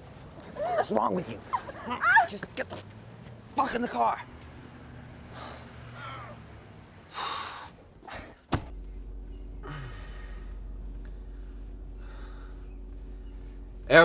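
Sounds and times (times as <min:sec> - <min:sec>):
car engine hum from inside: 0:00.0 - 0:14.0
sharp rushing breath: 0:07.1 - 0:08.4
low falling moan: 0:08.0 - 0:14.0
car door slamming: 0:08.4 - 0:08.7.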